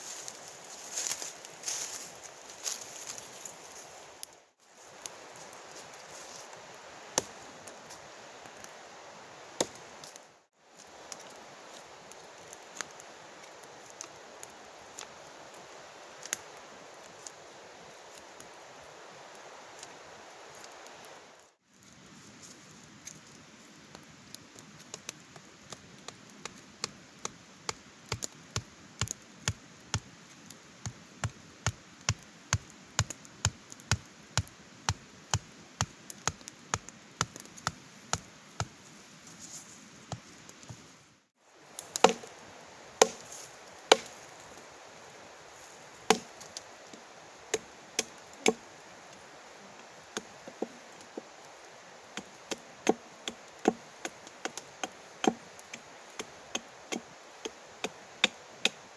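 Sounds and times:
wood chopping with blade: 0:41.8 - 0:42.3, 0:43.0 - 0:43.3, 0:43.9 - 0:44.2, 0:46.1 - 0:46.4, 0:52.2 - 0:58.8.

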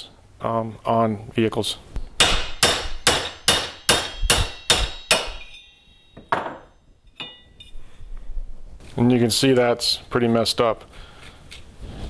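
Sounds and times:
hammer striking metal socket: 0:02.2 - 0:07.7
light metal clink: 0:05.4 - 0:07.8.

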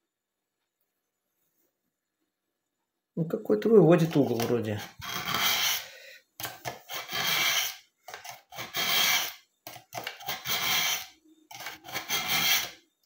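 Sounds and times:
knife rasping through sharpener: 0:04.4 - 0:05.9, 0:06.6 - 0:12.8.

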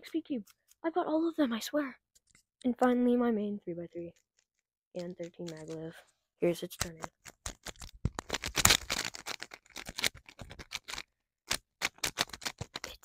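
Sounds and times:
speed cube clicking: 0:06.8 - 0:13.0.

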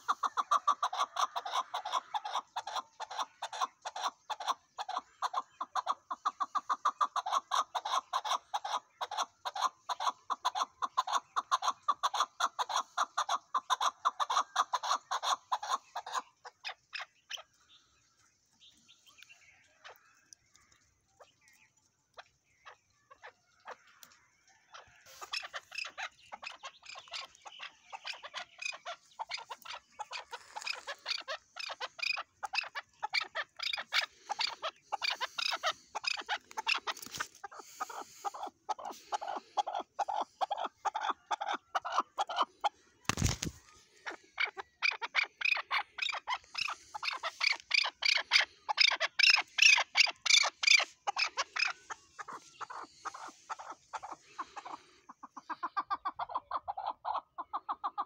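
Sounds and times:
partridge calling: 0:00.0 - 0:18.0, 0:24.7 - 0:58.0.

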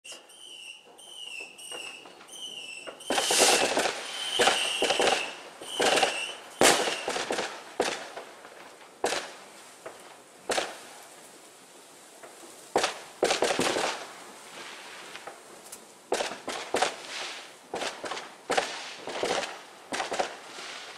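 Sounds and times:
firework whistles: 0:00.1 - 0:07.5, 0:16.2 - 0:20.9
firework bangs: 0:00.1 - 0:10.9, 0:12.7 - 0:15.3, 0:16.1 - 0:20.9
fireworks crackling: 0:00.1 - 0:20.9.

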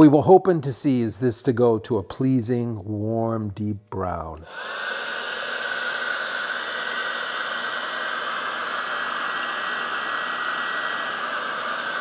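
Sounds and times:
heat gun blowing hiss: 0:04.4 - 0:12.0.

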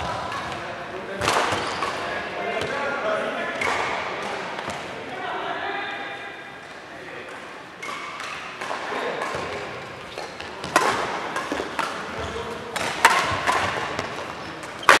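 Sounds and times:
rackets striking shuttlecock: 0:00.0 - 0:02.8, 0:07.2 - 0:15.0.

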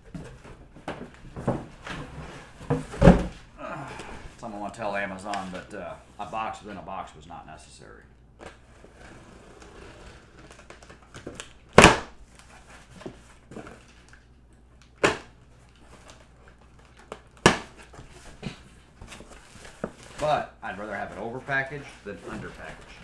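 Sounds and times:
cardboard rustling: 0:08.5 - 0:11.5, 0:15.0 - 0:23.0.

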